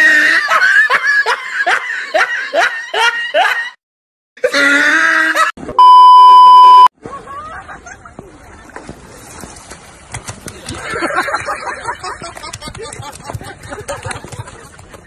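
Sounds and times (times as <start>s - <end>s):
electronic beep tone: 5.8s - 6.9s.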